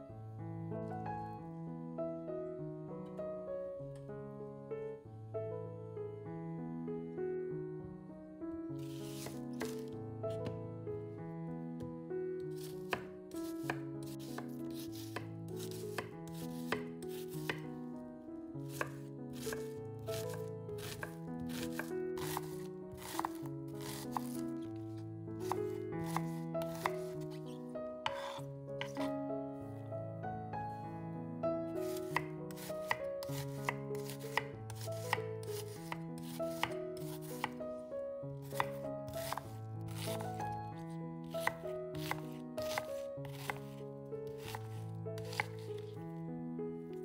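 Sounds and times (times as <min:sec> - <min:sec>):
soft background music: 0:00.0 - 0:47.0
knife chopping on cutting board: 0:09.0 - 0:10.6, 0:12.6 - 0:17.7, 0:18.7 - 0:24.4, 0:25.4 - 0:27.5, 0:28.1 - 0:29.1, 0:31.8 - 0:37.6, 0:38.5 - 0:40.5, 0:41.4 - 0:43.8, 0:44.4 - 0:45.7.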